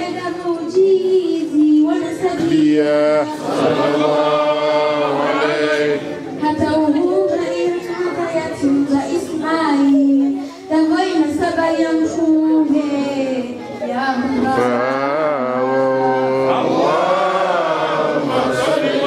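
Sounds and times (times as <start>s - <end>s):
group singing devotional chant: 1.9s - 7.4s, 14.4s - 19.0s.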